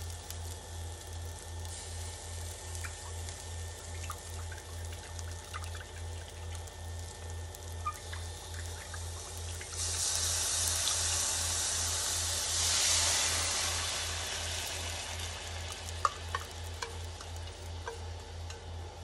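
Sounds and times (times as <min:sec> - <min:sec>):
sauce sizzling in a hot pan: 0:00.0 - 0:19.0
pan stirring taps: 0:16.0 - 0:18.7.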